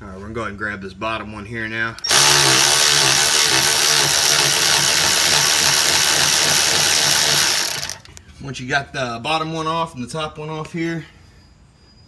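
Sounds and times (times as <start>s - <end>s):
electric ratchet whirring: 2.0s - 8.2s.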